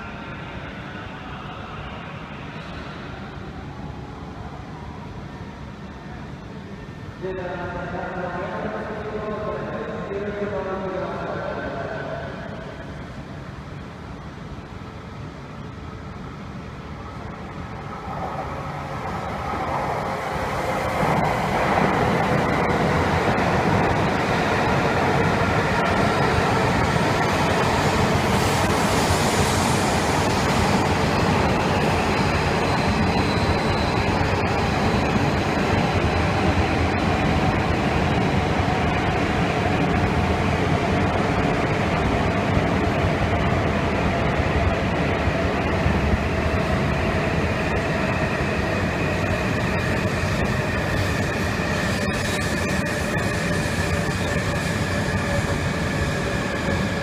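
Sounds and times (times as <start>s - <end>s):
faint train whine: 0.0s - 57.0s
train rolling rumble: 11.9s - 57.0s.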